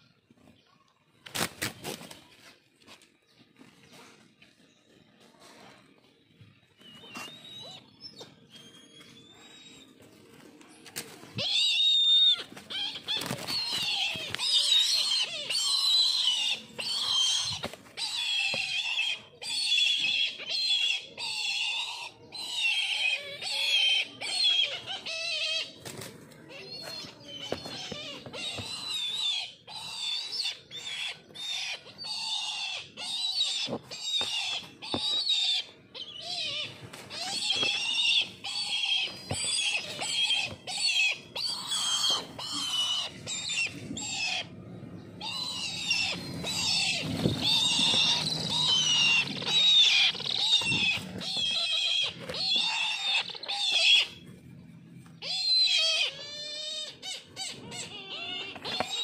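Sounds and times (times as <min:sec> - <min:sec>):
kites squealing calls: 0:11.4 - 0:19.2, 0:45.2 - 0:54.2.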